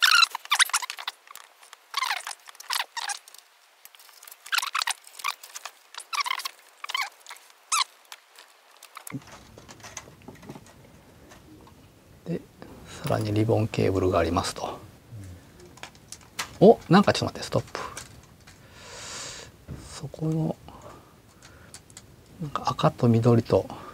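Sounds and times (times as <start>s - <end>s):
screwdriver squeaking on screws: 0.0s - 3.4s, 4.0s - 9.4s
low steady hum: 5.2s - 23.9s.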